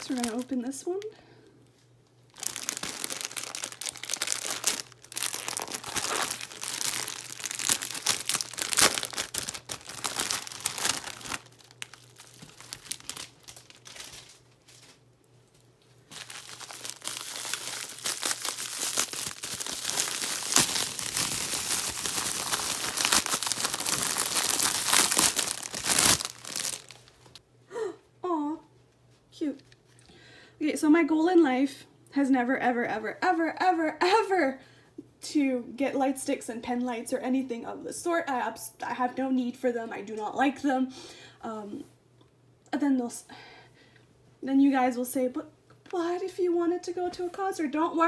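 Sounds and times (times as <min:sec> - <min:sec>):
plastic packaging crinkling: 0:00.0 - 0:00.7, 0:02.3 - 0:15.0, 0:16.0 - 0:27.4.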